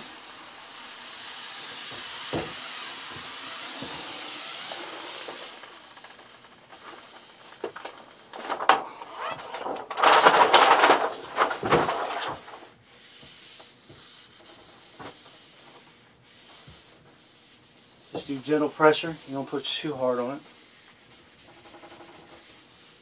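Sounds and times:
squeegee rubbing over vinyl: 0.0s - 9.9s, 10.6s - 23.0s
paper backing rustling and crinkling: 6.7s - 12.8s.

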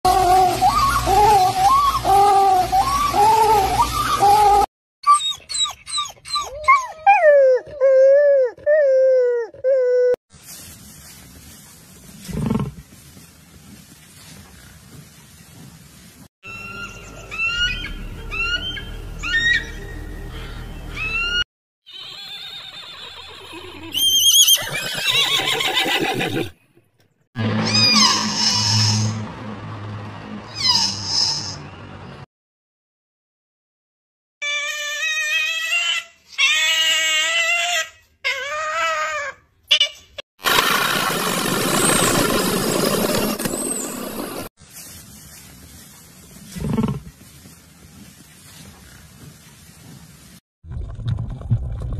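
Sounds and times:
dog whining howls: 0.1s - 10.2s
dog yipping: 3.6s - 9.8s.

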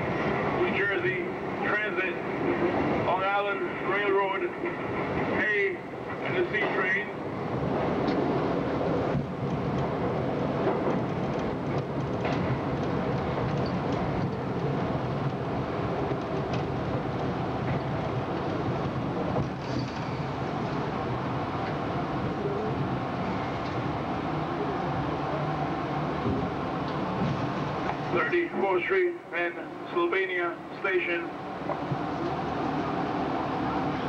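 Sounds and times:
subway car wheels rumbling on rail: 0.0s - 34.0s
faint clicks along track: 8.0s - 8.3s, 9.1s - 10.0s, 10.6s - 20.9s, 23.5s - 23.9s, 26.2s - 28.4s, 31.6s - 32.4s.

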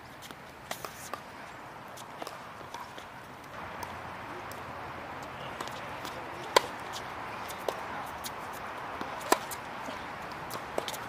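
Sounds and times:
tennis racket hitting ball: 5.2s - 11.0s.

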